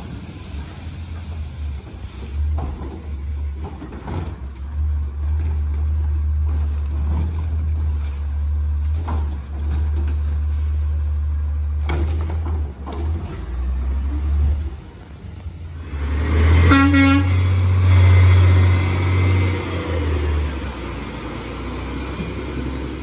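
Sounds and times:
garbage truck engine passing: 0.0 - 23.0
truck horn toot: 16.4 - 17.8.

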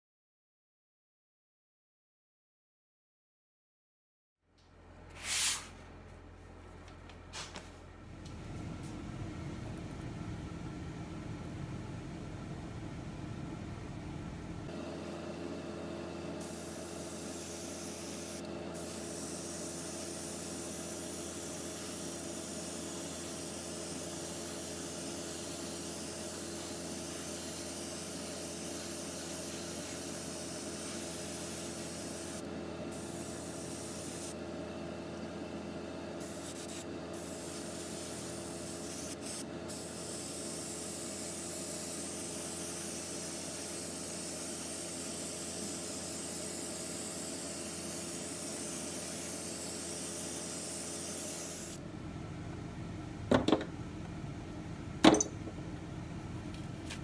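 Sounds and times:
constant low hum: 4.5 - 15.4, 51.7 - 57.0.

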